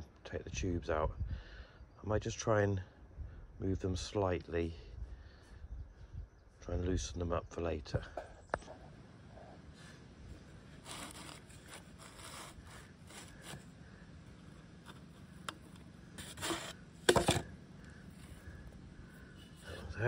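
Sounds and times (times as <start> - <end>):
pipe scraping against concrete: 10.8 - 13.8, 14.8 - 17.5.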